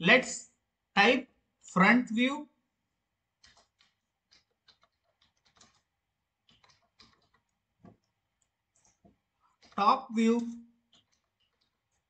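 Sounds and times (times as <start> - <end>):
typing on computer keyboard: 3.4 - 8.1, 10.8 - 12.0.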